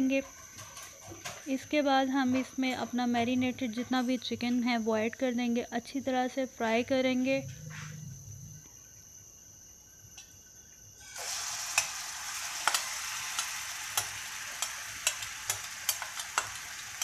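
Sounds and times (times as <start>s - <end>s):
chicken sizzling in hot oil: 11.0s - 17.0s
spattering oil pops: 12.6s - 16.7s.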